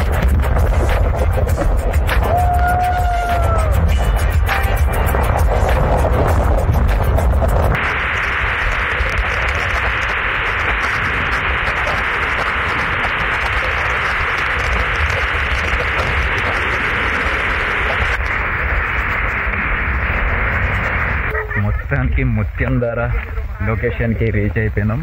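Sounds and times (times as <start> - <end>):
rushing falling water: 0.0 - 25.0.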